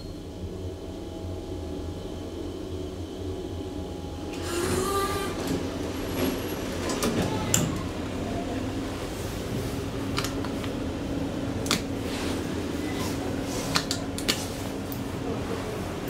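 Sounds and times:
elevator low hum: 0.0s - 16.0s
sliding doors opening: 4.3s - 8.8s.

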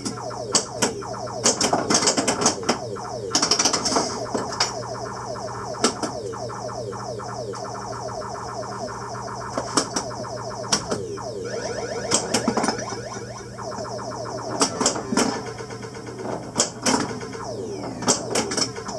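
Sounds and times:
electronic sound effects: 0.0s - 18.9s
rapid clicks: 0.0s - 18.9s.

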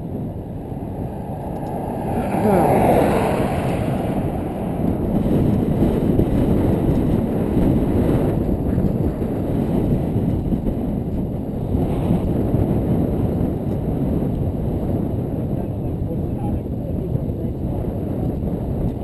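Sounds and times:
wind buffeting microphone: 0.0s - 19.0s.

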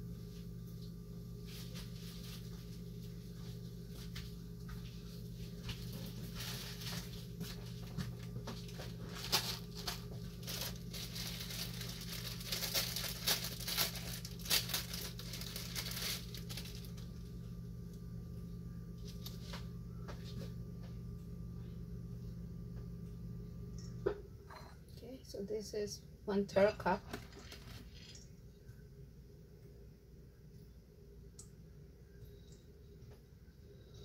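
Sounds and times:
steady low hum: 0.0s - 34.0s
plastic bag crinkling: 5.7s - 17.4s, 27.1s - 28.2s.

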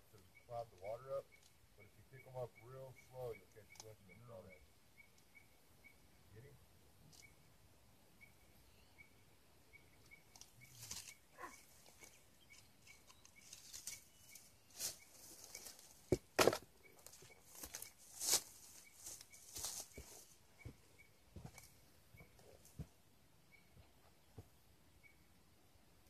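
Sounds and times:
rustling and scraping in dry leaves: 10.4s - 20.4s.

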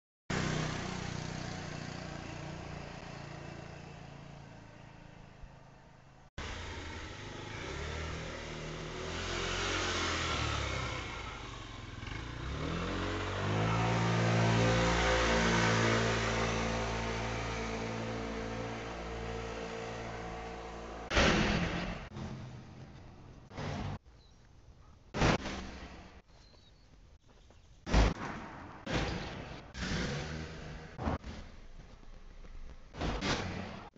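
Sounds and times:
vehicle engine speeding up: 6.4s - 24.0s, 29.5s - 32.1s.

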